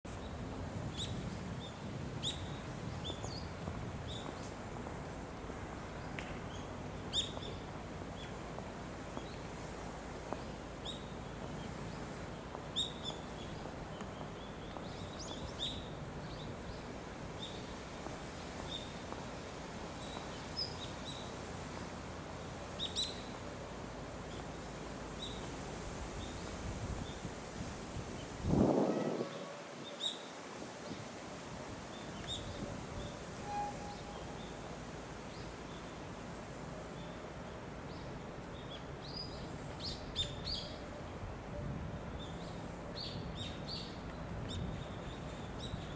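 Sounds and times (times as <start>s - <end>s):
outdoor ambience hiss: 0.0s - 45.9s.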